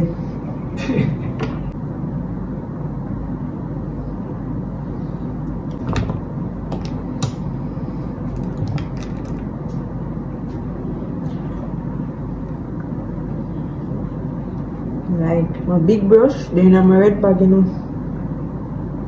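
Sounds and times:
low rumbling background noise: 0.0s - 19.0s.

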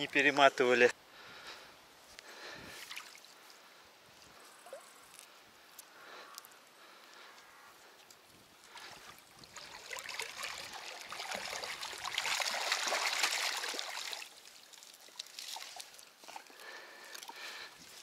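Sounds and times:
water splashing and running off: 8.7s - 18.0s.

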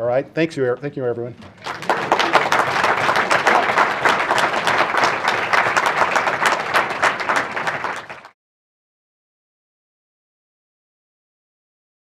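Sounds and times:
audience applauding: 1.4s - 8.4s.

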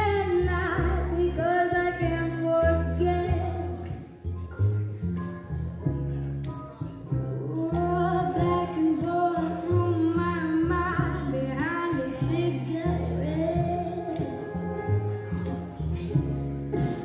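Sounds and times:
bass line: 0.0s - 17.0s
woman singing with vibrato: 7.5s - 14.3s.

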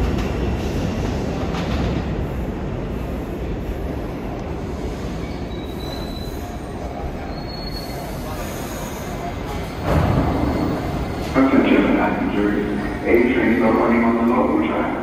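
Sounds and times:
subway train rumbling: 0.0s - 15.0s
faint wheel squeals: 5.2s - 9.6s.

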